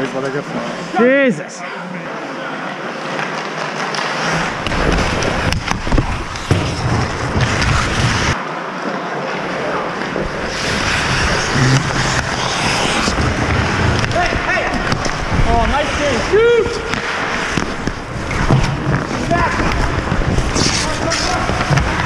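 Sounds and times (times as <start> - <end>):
skates scraping on ice: 2.9 - 22.0
hockey sticks clacking: 3.0 - 8.4, 10.0 - 22.0.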